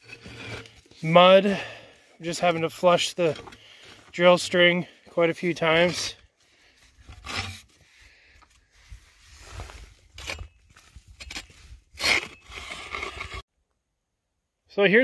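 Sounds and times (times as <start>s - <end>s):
steel rod scraping in rock hole: 0.0s - 6.2s, 7.0s - 7.8s, 9.2s - 13.4s.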